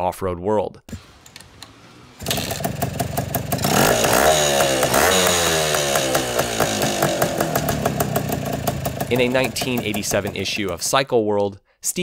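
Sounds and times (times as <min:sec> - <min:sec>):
motorcycle kick-started: 0:00.9 - 0:11.0
motorcycle engine revving: 0:01.0 - 0:10.9
two-stroke engine popping idle: 0:02.2 - 0:11.0.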